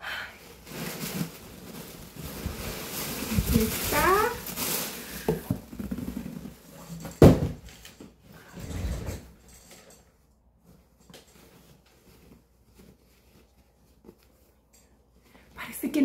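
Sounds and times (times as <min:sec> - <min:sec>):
cloth bag and tissue paper rustling: 0:00.0 - 0:07.0, 0:10.2 - 0:16.0
faint handling sounds: 0:00.4 - 0:08.6, 0:09.2 - 0:16.0.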